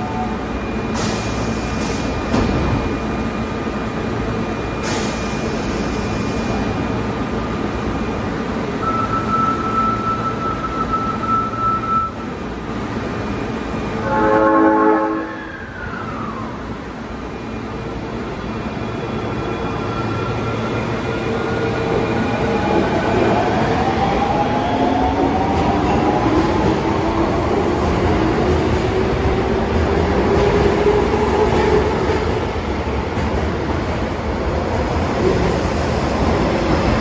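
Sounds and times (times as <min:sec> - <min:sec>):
train horn blast: 0:14.0 - 0:15.5.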